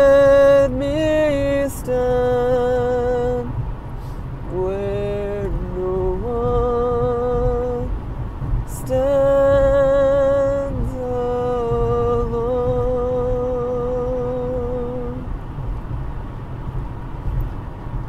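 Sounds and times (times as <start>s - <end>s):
man singing a hymn: 0.0s - 3.6s, 4.5s - 8.0s, 8.7s - 15.3s
car noise rumble: 0.0s - 18.0s.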